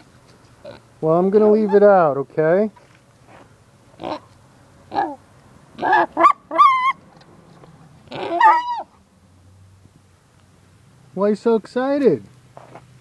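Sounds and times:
pig grunting and squealing: 0:04.0 - 0:04.3, 0:04.9 - 0:05.2, 0:05.8 - 0:07.0, 0:08.1 - 0:08.9.

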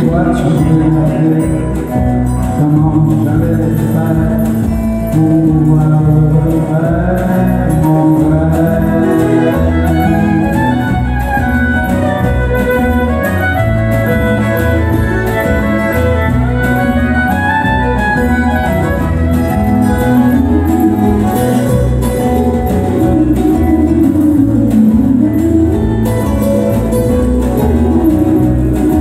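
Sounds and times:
drums: 0:00.0 - 0:29.0
strummed acoustic guitars: 0:00.0 - 0:29.0
fiddle: 0:08.1 - 0:29.0.

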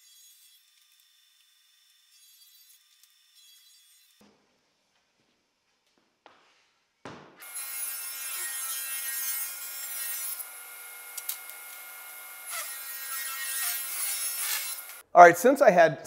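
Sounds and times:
table saw ripping wood: 0:07.4 - 0:15.0.

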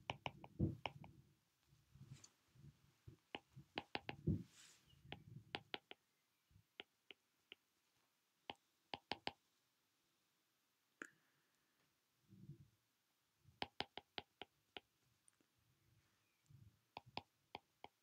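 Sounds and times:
stylus clicking on glass screen: 0:05.1 - 0:06.0, 0:08.5 - 0:09.4, 0:13.6 - 0:14.9.

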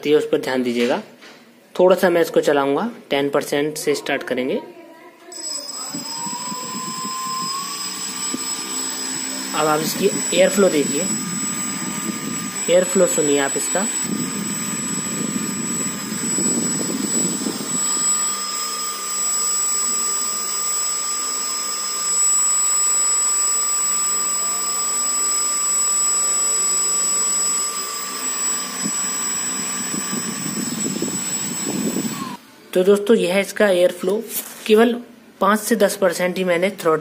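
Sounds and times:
drone motor high-pitched whine: 0:05.4 - 0:32.4
propeller air rush: 0:05.9 - 0:22.2, 0:27.2 - 0:32.4.

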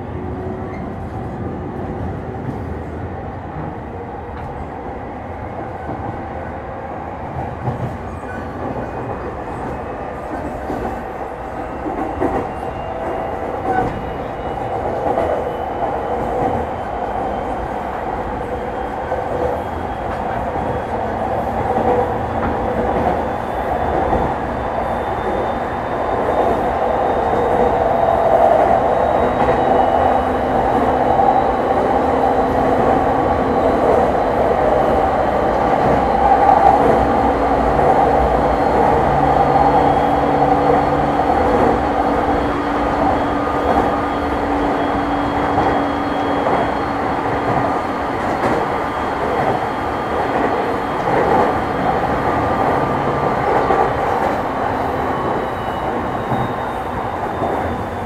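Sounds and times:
electric train running on rails: 0:00.0 - 0:58.0.

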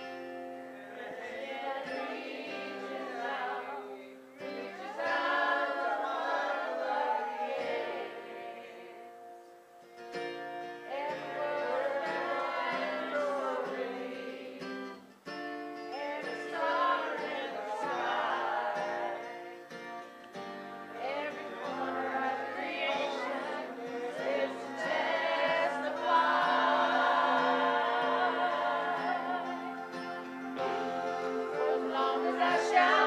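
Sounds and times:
group of people singing: 0:00.0 - 0:09.4, 0:10.8 - 0:15.1, 0:15.8 - 0:33.0
amplified instrumental accompaniment: 0:16.8 - 0:33.0.

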